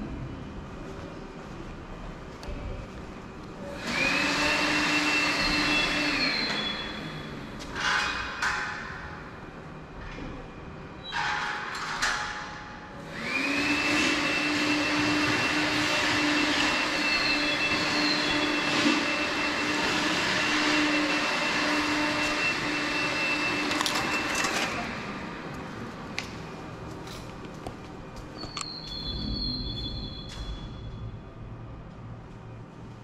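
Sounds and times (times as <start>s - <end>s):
motor machine whining: 3.7s - 7.7s, 13.0s - 25.5s.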